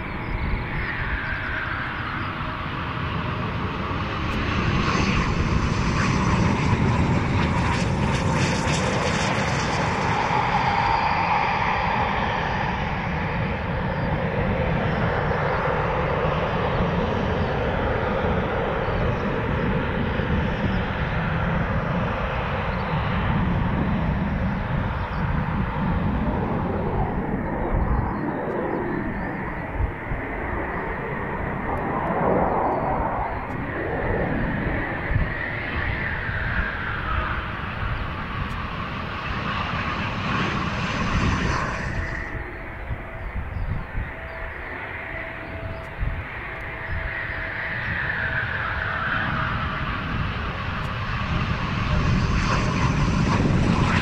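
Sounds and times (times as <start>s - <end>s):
jet engines rumbling: 0.0s - 54.0s.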